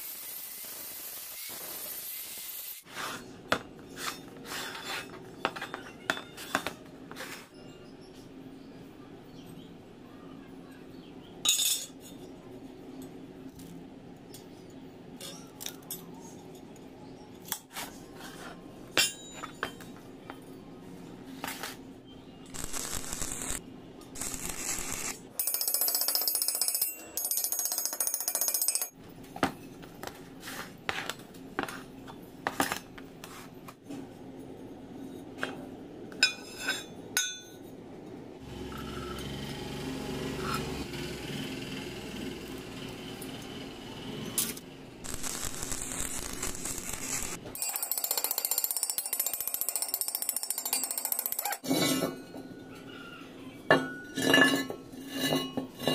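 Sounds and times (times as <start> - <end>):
loud hissing crackle: 22.6 - 23.6, 24.2 - 25.2, 45.0 - 47.4.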